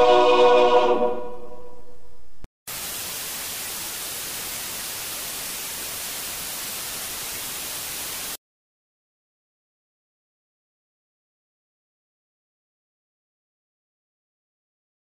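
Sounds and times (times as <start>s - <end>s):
held musical chord: 0.0s - 1.9s
television static hiss: 2.7s - 8.4s.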